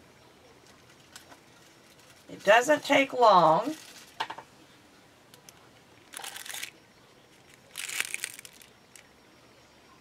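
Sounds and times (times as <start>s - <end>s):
aluminium foil crinkling: 0.6s - 4.4s, 5.4s - 9.1s.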